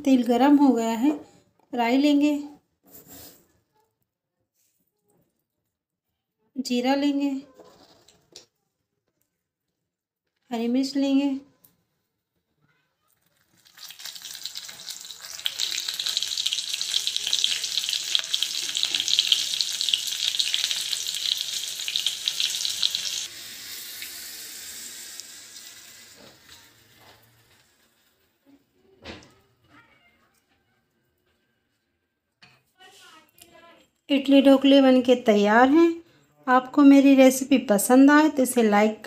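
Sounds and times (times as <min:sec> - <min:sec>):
chillies sizzling in hot oil: 0:13.2 - 0:28.8.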